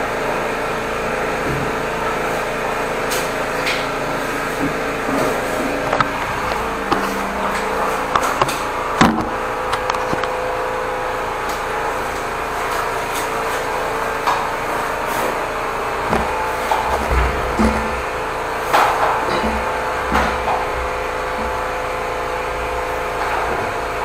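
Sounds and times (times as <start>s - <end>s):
drain jetter humming: 0.0s - 24.0s.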